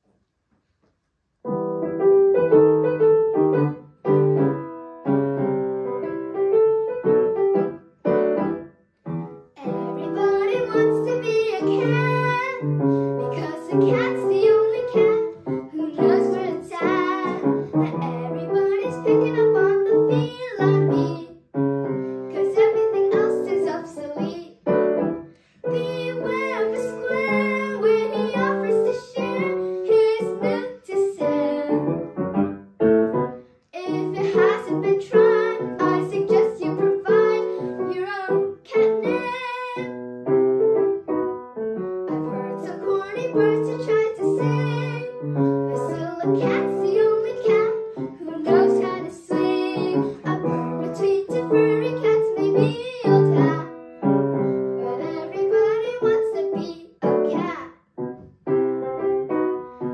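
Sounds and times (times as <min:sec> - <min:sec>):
piano accompaniment: 0:01.4 - 0:59.9
girl singing with vibrato: 0:09.6 - 0:24.8, 0:25.6 - 0:32.1, 0:33.8 - 0:40.0, 0:42.1 - 0:53.8, 0:54.4 - 0:57.7.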